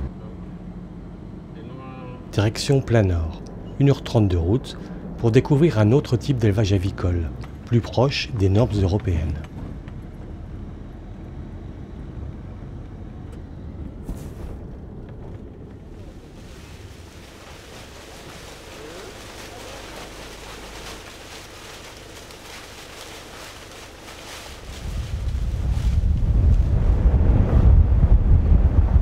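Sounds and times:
engine and tyres rumbling: 0:00.0 - 0:29.0
wind rushing hiss: 0:16.2 - 0:29.0.

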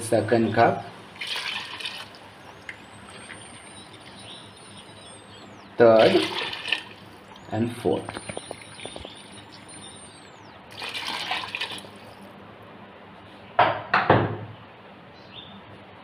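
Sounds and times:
water pouring and splashing: 0:01.0 - 0:03.3, 0:06.0 - 0:07.2, 0:10.7 - 0:12.2.

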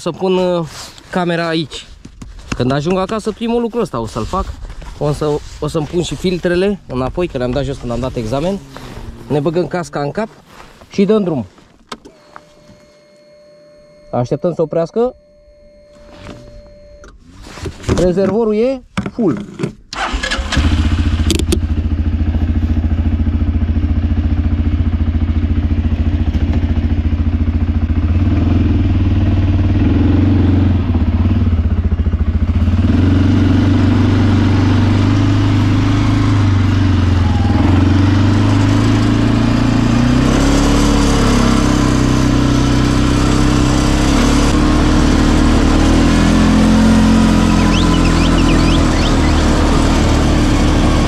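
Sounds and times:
quad bike engine running: 0:20.5 - 0:51.0
rushing ride noise: 0:46.8 - 0:51.0.

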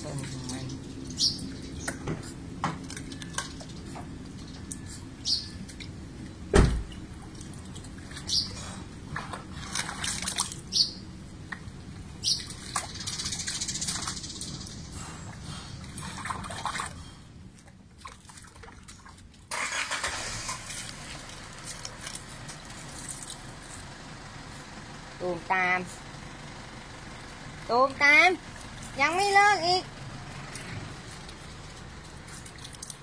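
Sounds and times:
muddy water splashing and dripping: 0:00.0 - 0:23.8, 0:28.4 - 0:33.0
loud thump: 0:06.5 - 0:06.9.

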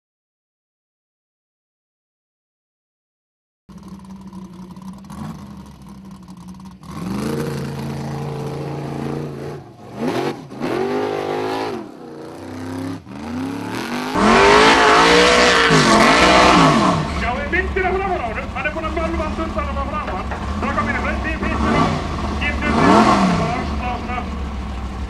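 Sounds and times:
buggy engine revving: 0:03.7 - 0:25.0.

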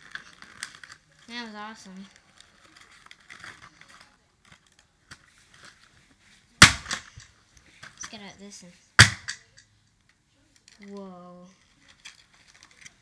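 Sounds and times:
plastic bag rustling and crinkling: 0:00.0 - 0:06.6, 0:11.6 - 0:13.0.

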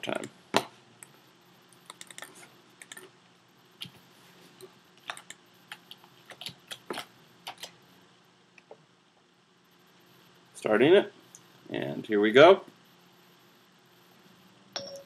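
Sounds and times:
faint keyboard typing: 0:01.0 - 0:03.1, 0:05.0 - 0:07.8.

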